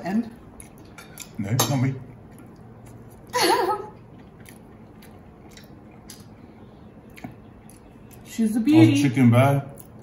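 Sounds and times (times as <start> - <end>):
biting and chewing fried chicken: 4.0 - 8.3.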